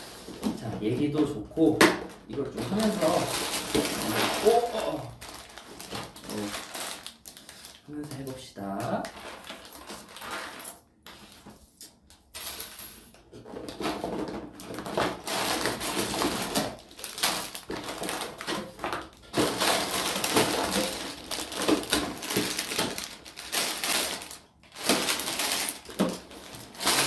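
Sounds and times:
plastic bags crinkling: 0:00.0 - 0:27.0
plastic bricks rattling: 0:13.4 - 0:27.0.

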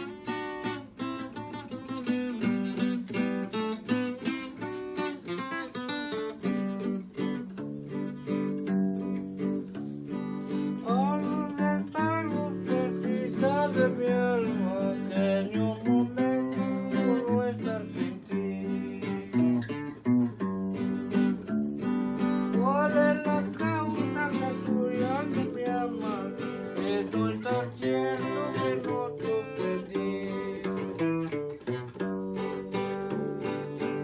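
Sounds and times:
acoustic guitar strumming chords: 0:00.0 - 0:34.0.

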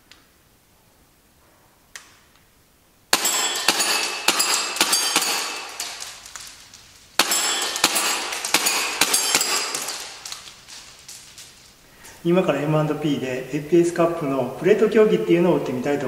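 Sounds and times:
airsoft pistol shots: 0:03.1 - 0:06.1, 0:07.2 - 0:10.2
pellets ringing on metal plates: 0:03.1 - 0:11.6.

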